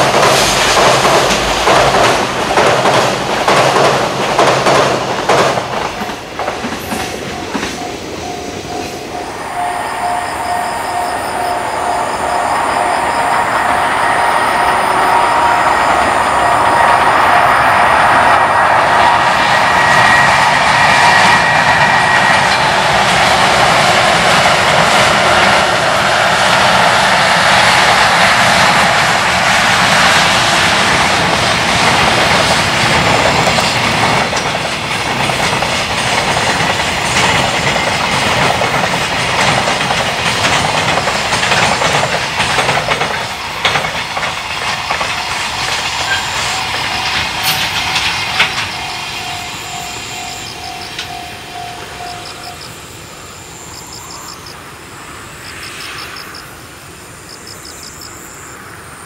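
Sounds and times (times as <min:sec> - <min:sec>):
clickety-clack over rail joints: 0:00.0 - 0:09.2, 0:12.8 - 0:52.6
freight train wheels rumbling: 0:00.0 - 0:57.4.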